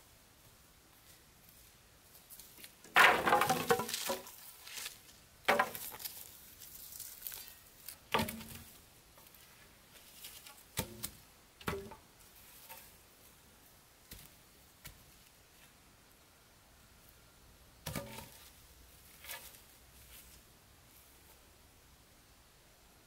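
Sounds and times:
wooden planks knocking together: 0:02.9 - 0:04.4, 0:05.5 - 0:06.2, 0:08.1 - 0:08.7.

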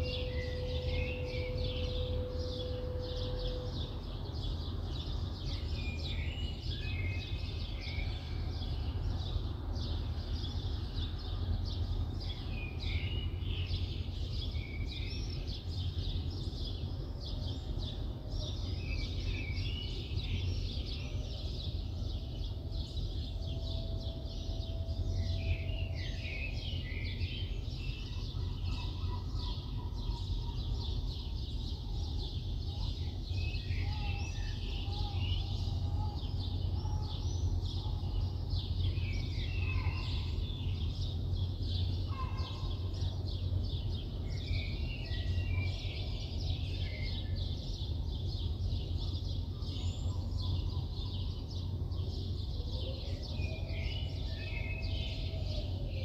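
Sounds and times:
lower bird calls: 0:00.0 - 0:04.7
city background rumble: 0:00.0 - 0:56.0
small birds chirping: 0:00.0 - 0:56.0.

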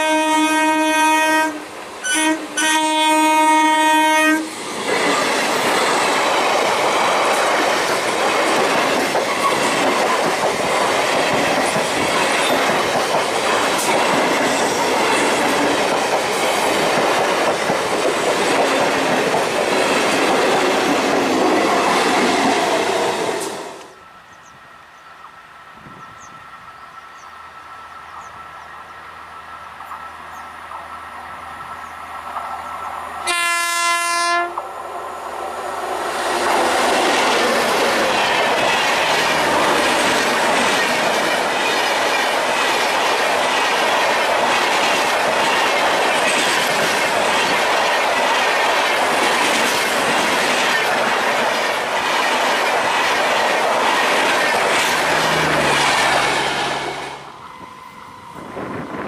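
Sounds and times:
locomotive horn blast: 0:00.0 - 0:04.5, 0:33.2 - 0:34.6
train passing rush: 0:00.0 - 0:59.0
wheels clattering on rails: 0:04.8 - 0:22.8, 0:36.4 - 0:57.1.

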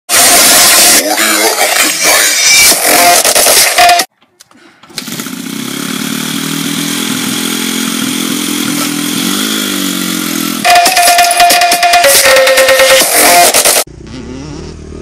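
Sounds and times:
loud music: 0:00.1 - 0:04.1, 0:08.6 - 0:13.9
dirt bike engine idling: 0:05.0 - 0:11.3.

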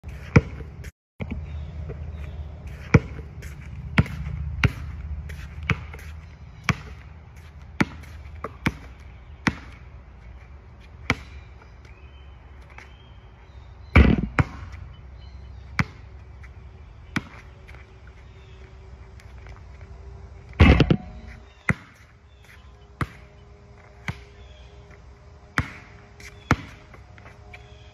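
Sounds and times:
basketball bouncing on court: 0:00.2 - 0:02.1, 0:02.7 - 0:09.9, 0:11.0 - 0:11.4, 0:13.9 - 0:14.8, 0:15.7 - 0:16.2, 0:17.1 - 0:17.8, 0:20.6 - 0:24.4, 0:25.5 - 0:27.0.

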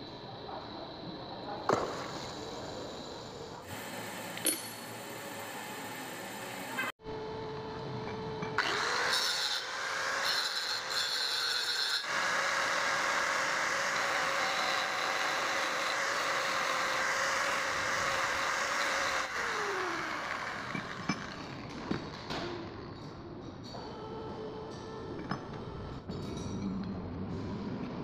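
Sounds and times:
angle grinder grinding steel: 0:08.5 - 0:21.8.

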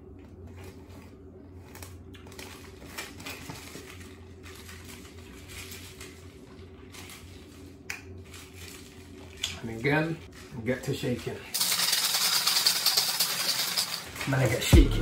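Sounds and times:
ice clinking in plastic shaker: 0:11.6 - 0:14.7.

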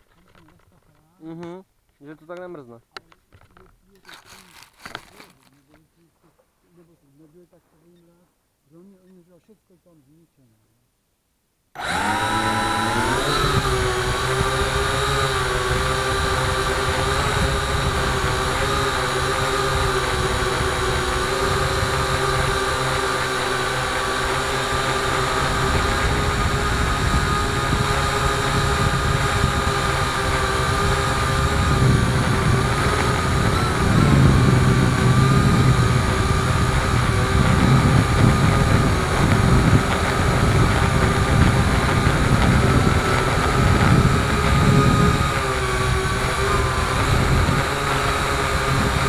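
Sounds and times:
drone propellers whining: 0:11.8 - 0:49.0
wind rumble: 0:24.9 - 0:49.0.

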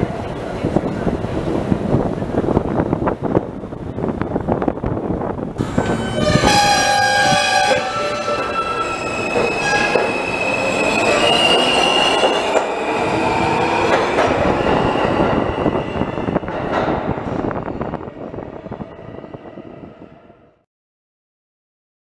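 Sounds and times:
train wheels squealing on rails: 0:05.6 - 0:16.4
train whine rising in pitch: 0:05.6 - 0:16.4.

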